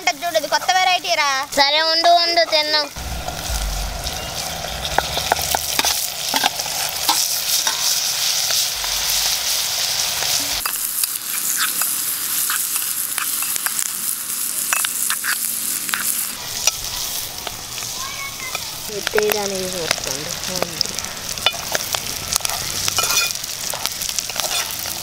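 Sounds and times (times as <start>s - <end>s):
liver frying in a pot: 0.0s - 25.0s
spoon scraping a pot: 22.9s - 24.8s.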